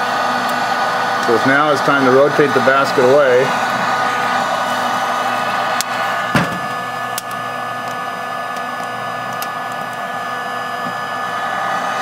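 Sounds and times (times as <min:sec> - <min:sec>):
coffee roaster whirring: 0:00.0 - 0:12.0
heat gun blowing: 0:00.0 - 0:12.0
thump: 0:06.3 - 0:06.7.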